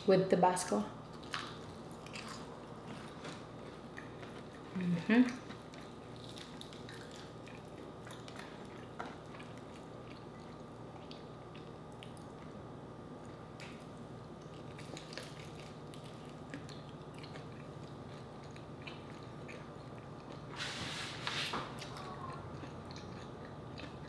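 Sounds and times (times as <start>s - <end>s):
faint steady hum: 0.0s - 24.0s
chewing crispy food: 1.1s - 20.6s, 21.6s - 24.0s.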